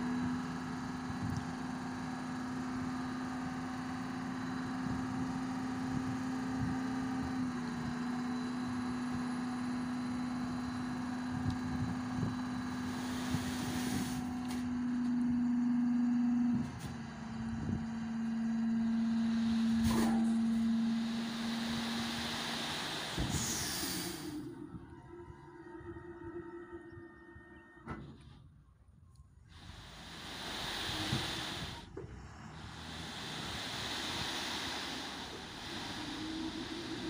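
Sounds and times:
truck hydraulic hoist hum: 0:08.0 - 0:28.5, 0:29.4 - 0:37.0
soil sliding out rushing: 0:29.7 - 0:37.0.

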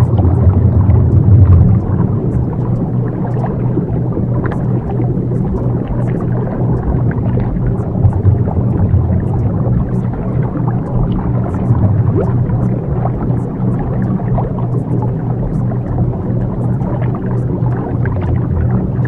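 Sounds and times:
dense rushing noise: 0:00.0 - 0:03.6, 0:05.8 - 0:13.6
low drone: 0:00.0 - 0:19.0.

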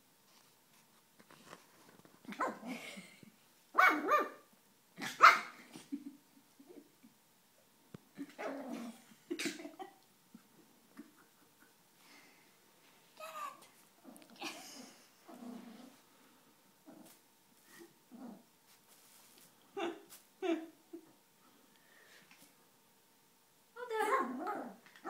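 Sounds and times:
puppy barking: 0:03.8 - 0:04.4, 0:05.0 - 0:05.5.

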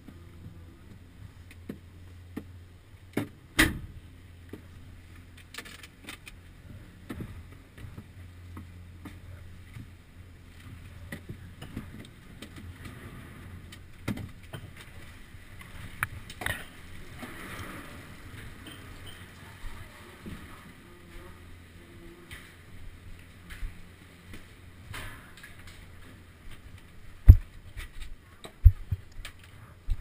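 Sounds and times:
low steady hum: 0:00.0 - 0:30.0
knocks and clatter of ski gear: 0:10.6 - 0:17.4, 0:23.4 - 0:30.0.

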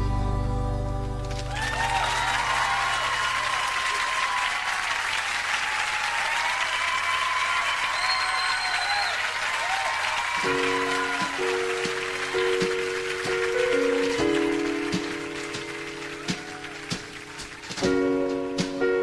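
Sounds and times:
audience applauding and cheering: 0:01.2 - 0:19.0
whistles from audience: 0:01.5 - 0:04.8, 0:05.8 - 0:12.7.

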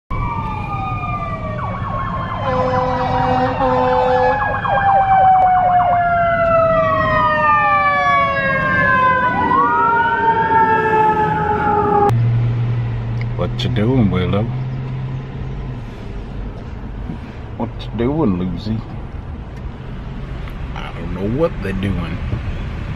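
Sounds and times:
emergency vehicle sirens: 0:00.1 - 0:12.2
low road rumble: 0:00.1 - 0:22.9.

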